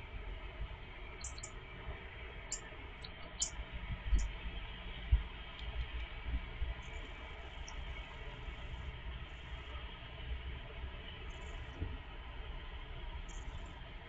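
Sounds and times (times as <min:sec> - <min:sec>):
low steady rumble: 0:00.0 - 0:14.0
robin tick calls: 0:01.2 - 0:01.6, 0:02.4 - 0:04.3.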